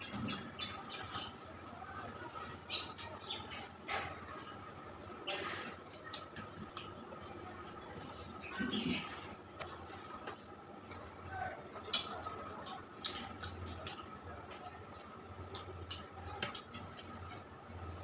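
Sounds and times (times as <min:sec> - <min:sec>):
chewing and mouth sounds: 0:11.8 - 0:17.6.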